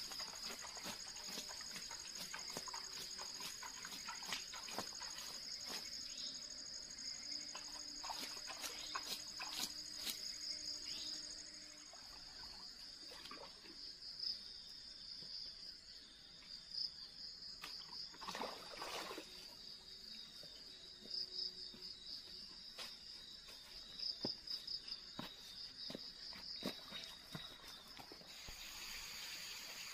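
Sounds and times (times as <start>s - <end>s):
insects chirring: 0.0s - 29.9s.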